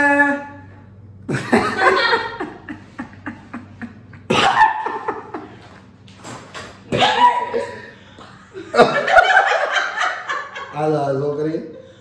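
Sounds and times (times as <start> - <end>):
man laughing: 1.3 - 5.7, 8.6 - 10.9.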